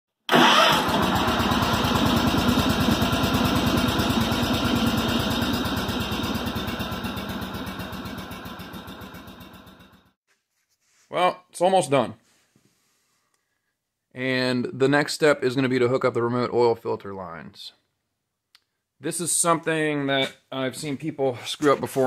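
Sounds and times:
small engine running steadily: 0.7s - 10.1s.

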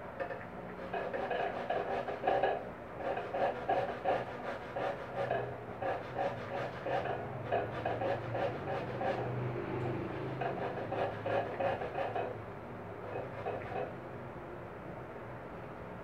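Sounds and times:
fruit rasping on a grater: 0.8s - 9.4s, 10.1s - 12.4s, 13.1s - 13.9s.

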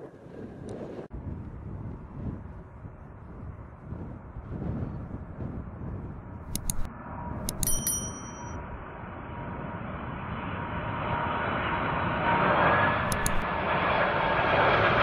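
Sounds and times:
sharp clicks: 6.5s - 8.5s, 13.0s - 13.4s
bell-like ding: 7.4s - 8.6s.

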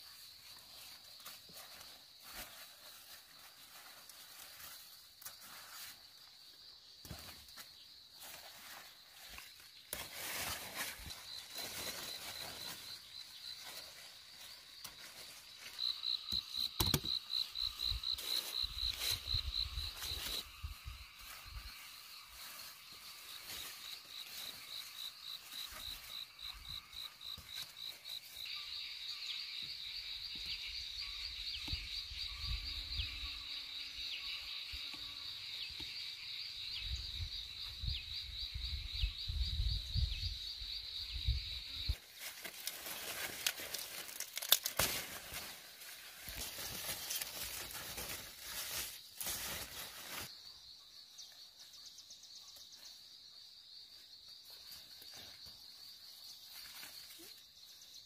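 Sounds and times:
leaves rustling: 0.0s - 29.4s, 41.8s - 50.5s, 54.4s - 57.5s
insects chirping: 0.0s - 58.0s.

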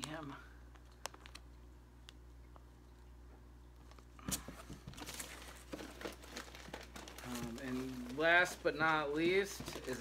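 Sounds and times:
low steady hum: 0.0s - 10.0s
plastic bags rustling and crinkling: 3.9s - 10.0s.

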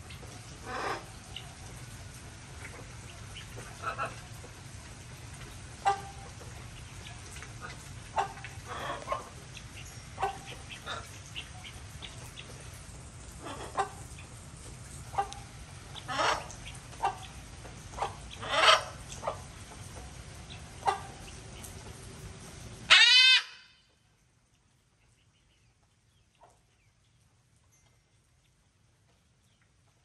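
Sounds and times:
chickens clucking: 0.1s - 22.0s
chicken squawk: 16.1s - 17.2s, 18.0s - 19.0s, 22.9s - 23.7s.

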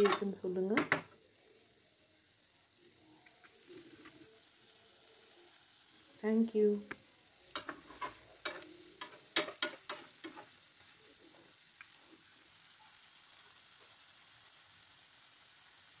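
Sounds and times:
utensil clinking in frying pan: 0.0s - 1.1s, 7.5s - 10.6s
faint steady hiss: 0.0s - 16.0s.

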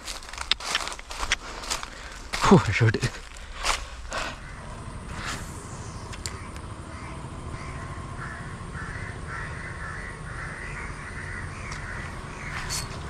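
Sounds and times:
crow cawing: 3.4s - 5.0s, 5.9s - 13.0s.

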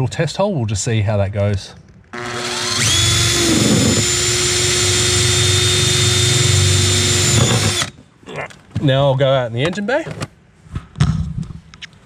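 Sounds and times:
cordless drill drilling metal: 2.2s - 8.0s.

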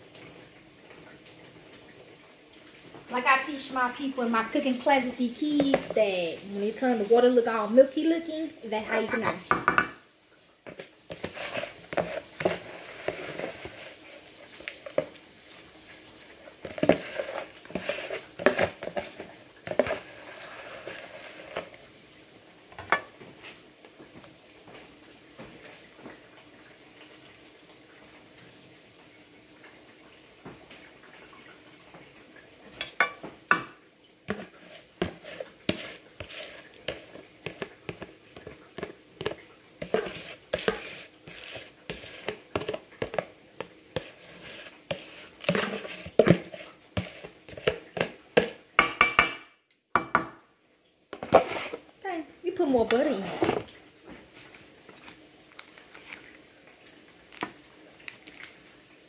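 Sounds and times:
spoon stirring rice in metal pot: 10.7s - 15.2s, 16.6s - 21.8s, 34.3s - 49.3s, 51.2s - 51.9s.

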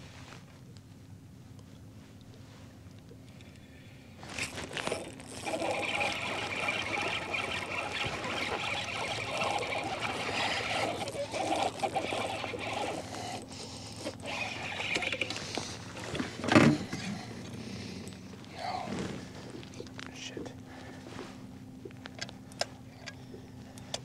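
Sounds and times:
water splashing: 4.4s - 15.3s
fishing reel cranking: 4.4s - 17.3s.

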